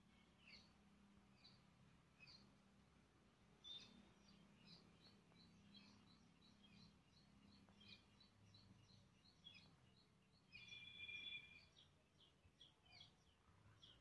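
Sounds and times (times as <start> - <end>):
bird chirping: 0.0 - 14.0
held bird call: 10.6 - 11.8.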